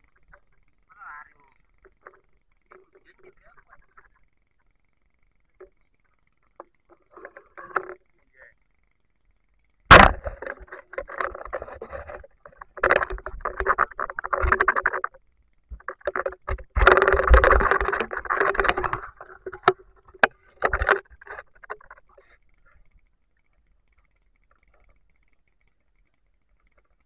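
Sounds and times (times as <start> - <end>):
scattered clicks: 0.0 - 27.0
sharp knock: 9.9 - 10.4
water splashing and sloshing: 9.9 - 22.2.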